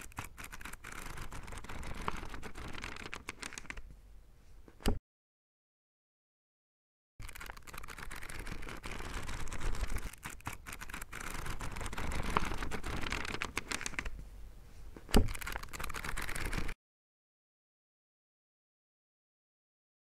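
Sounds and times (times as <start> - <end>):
book pages riffling: 0.0 - 3.9, 7.2 - 14.2, 15.0 - 16.8.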